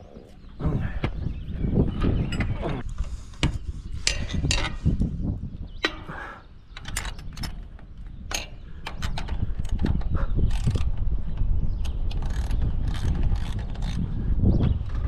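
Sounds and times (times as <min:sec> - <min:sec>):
metal hardware clicking and clinking: 0:06.7 - 0:10.9.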